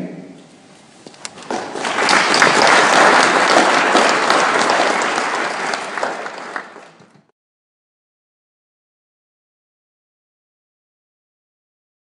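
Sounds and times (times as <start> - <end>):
audience applauding: 1.2 - 7.3.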